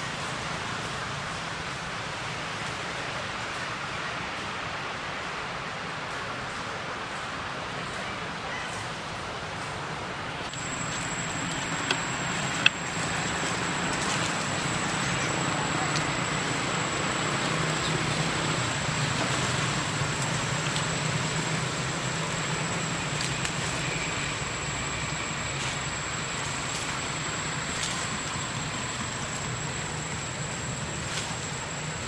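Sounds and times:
low hum: 10.4 - 32.0
thin high whine: 10.4 - 32.0.

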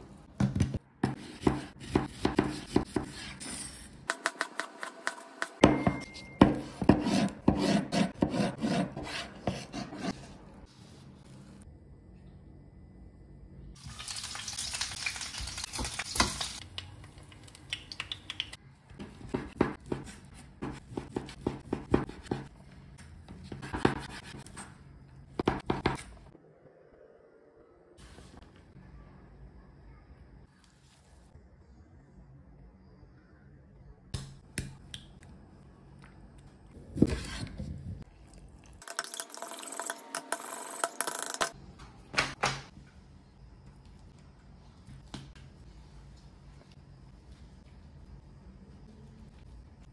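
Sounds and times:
chicken sizzling in a frying pan: 13.8 - 16.6.

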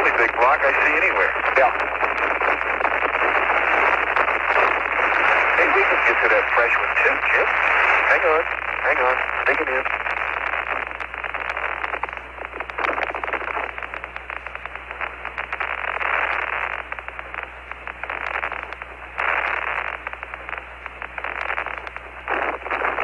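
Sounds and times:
low steady hum: 0.0 - 23.0
radio static hiss and crackle: 0.0 - 23.0.

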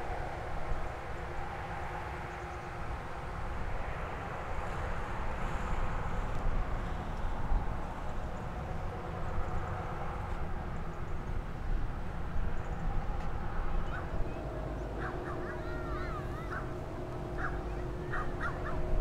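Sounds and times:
bird calls: 13.8 - 19.0.

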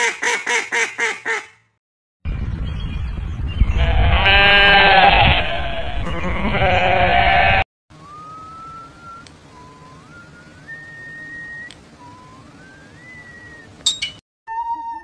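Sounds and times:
goat bleating: 3.8 - 7.6
whistle-like rising tone: 8.0 - 15.0.

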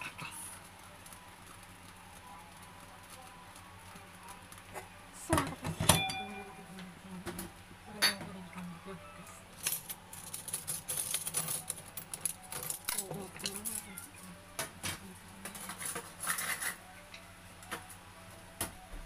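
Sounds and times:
metal kitchenware clinking: 5.3 - 6.6, 8.0 - 8.4, 9.6 - 16.8.

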